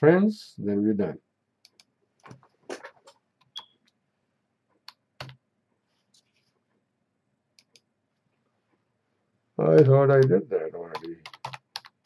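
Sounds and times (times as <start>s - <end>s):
keyboard and mouse clicks: 1.6s - 4.0s, 4.8s - 5.4s, 7.6s - 7.9s, 9.7s - 12.0s.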